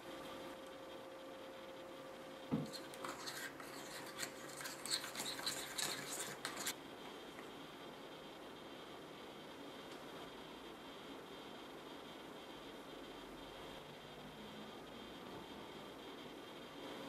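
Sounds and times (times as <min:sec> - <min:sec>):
plastic spoon scraping plastic tray: 0:02.6 - 0:06.7.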